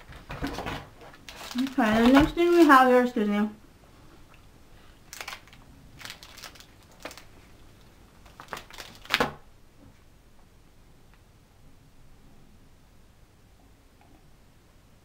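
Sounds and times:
packaging rustling: 0:00.0 - 0:02.9, 0:05.0 - 0:09.4.

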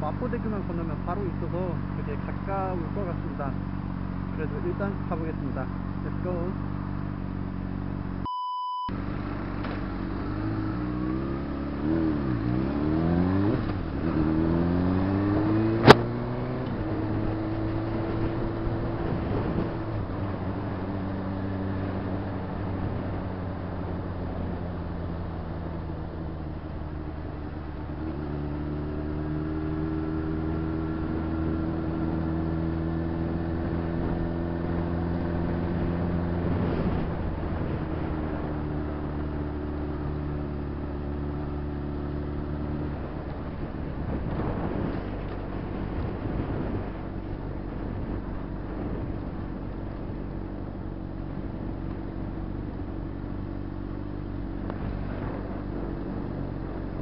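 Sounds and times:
motorcycle engine running: 0:00.0 - 0:08.2, 0:08.9 - 0:57.0
wind and road noise: 0:00.0 - 0:57.0.

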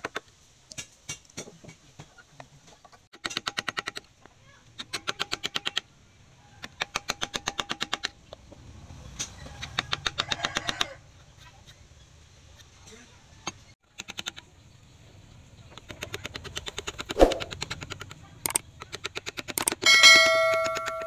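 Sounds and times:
rapid hammer taps on steel: 0:19.5 - 0:21.0.

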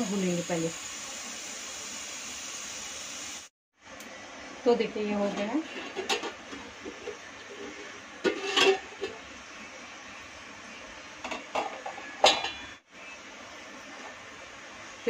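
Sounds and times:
metal pot lid clattering: 0:05.7 - 0:09.2, 0:11.2 - 0:12.7.

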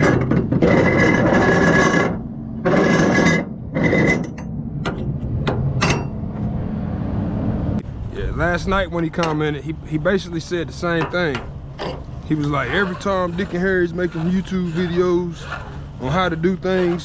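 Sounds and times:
strap webbing rasping: 0:11.4 - 0:17.0.

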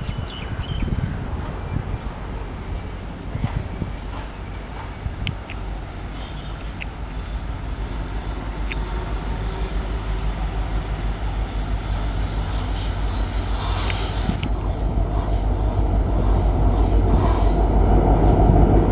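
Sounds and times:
train wheels rumbling on rails: 0:00.0 - 0:18.9
high whine: 0:00.2 - 0:18.9.

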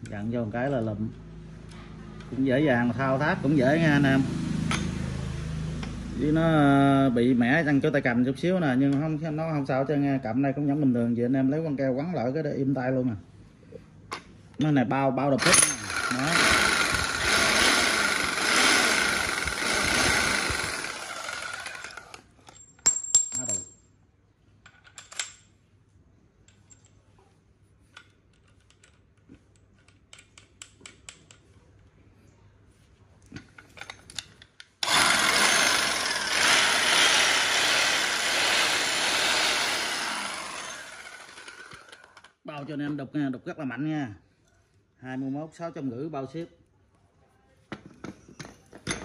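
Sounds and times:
electric demolition hammer running: 0:15.4 - 0:22.2, 0:34.8 - 0:42.3.

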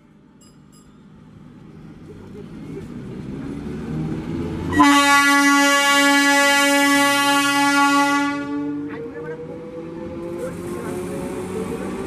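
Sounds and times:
train horn blast: 0:04.7 - 0:08.9.

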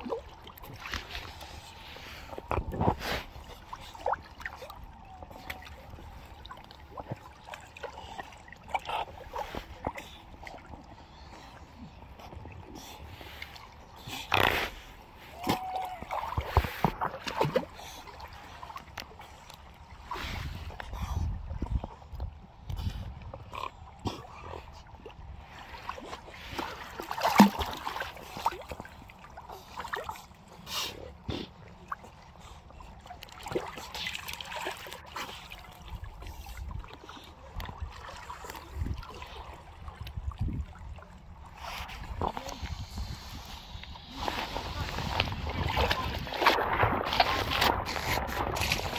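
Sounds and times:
water splashing and sloshing: 0:00.0 - 0:48.9.

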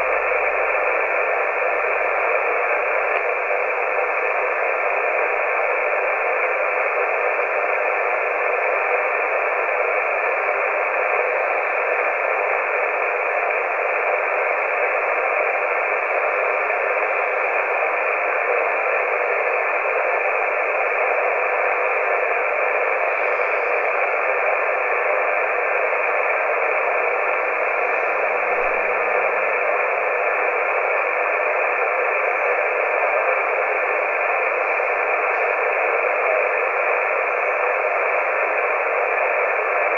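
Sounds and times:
radio static hiss: 0:00.0 - 0:39.9.

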